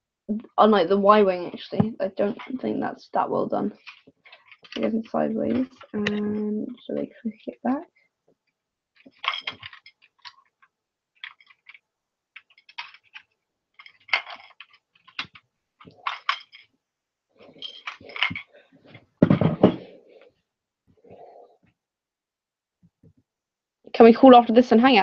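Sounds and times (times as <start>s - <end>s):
plastic pieces clicking and rattling: 3.8s - 4.9s, 9.0s - 11.8s, 12.4s - 16.7s, 17.6s - 18.5s.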